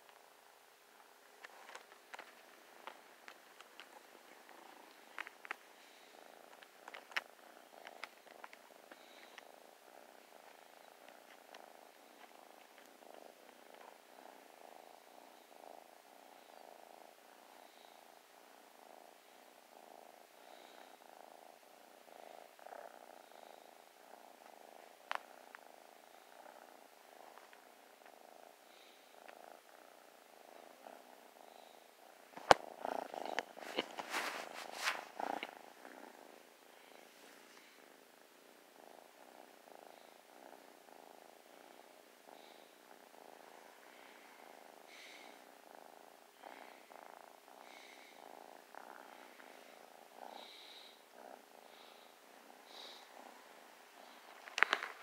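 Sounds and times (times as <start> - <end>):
kitten purring: 0.0 - 55.0.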